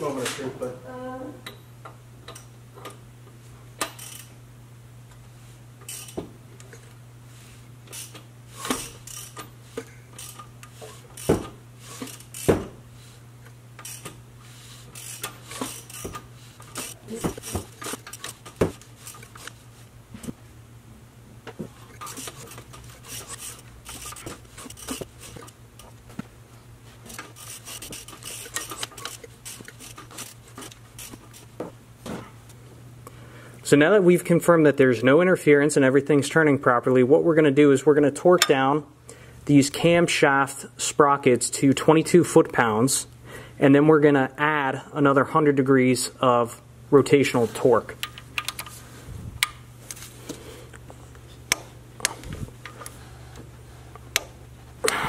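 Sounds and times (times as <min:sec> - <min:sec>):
metal clicks of hand wrench: 0:48.0 - 0:48.7.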